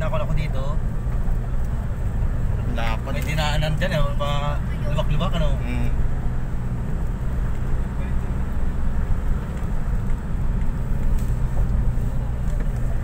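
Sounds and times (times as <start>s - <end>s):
tyres on concrete road: 0.0s - 13.0s
van engine drone: 0.0s - 13.0s.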